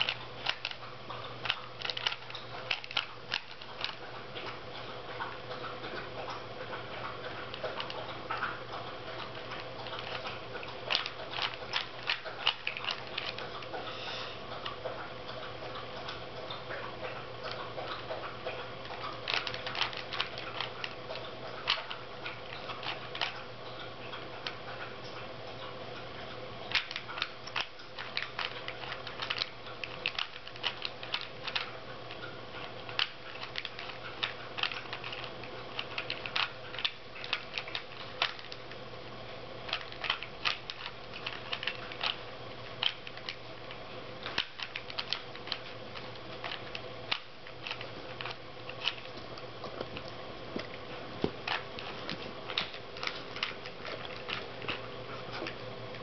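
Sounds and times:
plastic puzzle cube clicking: 0.0s - 0.8s, 1.4s - 4.0s, 10.9s - 13.4s, 18.9s - 21.0s, 26.7s - 31.7s, 32.9s - 38.7s, 39.7s - 42.2s, 44.3s - 45.7s
steady low hum: 0.0s - 56.0s.

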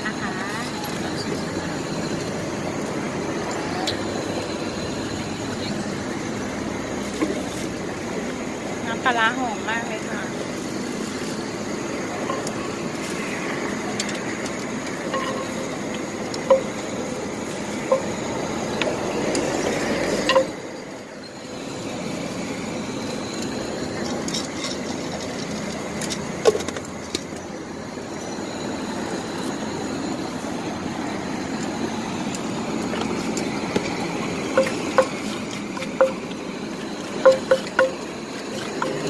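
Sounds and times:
pestle knocking clay mortar: 34.6s - 36.4s, 37.2s - 38.1s.

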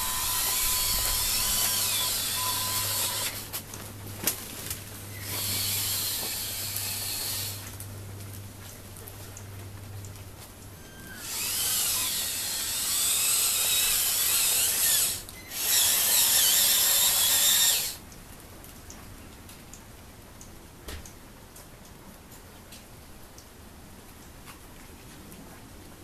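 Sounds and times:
electric toy truck motor whining: 0.0s - 3.6s, 5.2s - 7.6s, 10.8s - 18.0s.

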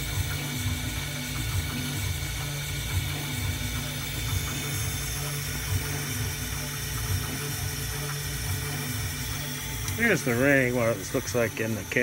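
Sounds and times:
milling machine spindle whine: 0.0s - 12.0s.

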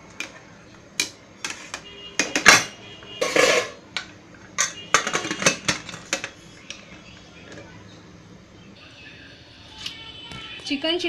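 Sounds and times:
metallic lid clanks: 2.2s - 3.8s.

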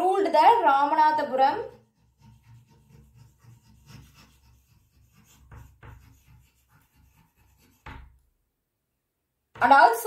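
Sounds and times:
chalk scratching on blackboard: 0.5s - 8.2s
chalk tap: 1.5s - 8.3s.

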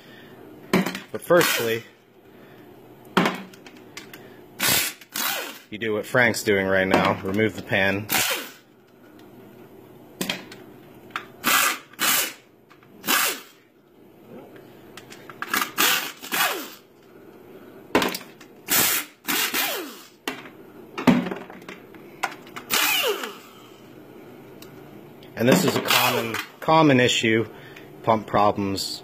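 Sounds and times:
power drill spinning bolts: 22.7s - 23.5s.

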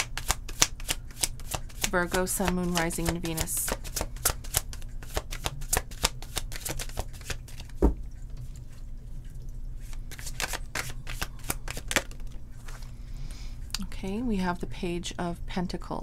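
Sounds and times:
cards being shuffled: 0.0s - 7.9s, 9.8s - 12.9s.

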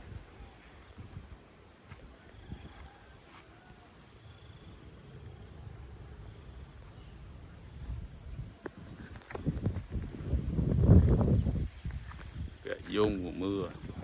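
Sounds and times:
wind rumbling on microphone: 0.0s - 3.2s, 6.1s - 14.0s.

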